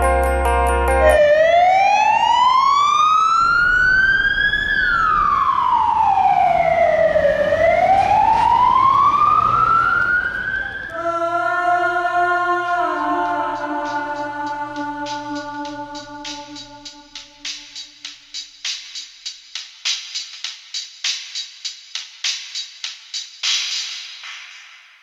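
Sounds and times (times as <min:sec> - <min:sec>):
music: 0:00.0 - 0:01.5, 0:11.0 - 0:25.0
police siren wailing: 0:01.0 - 0:17.6
traffic noise: 0:01.6 - 0:17.5.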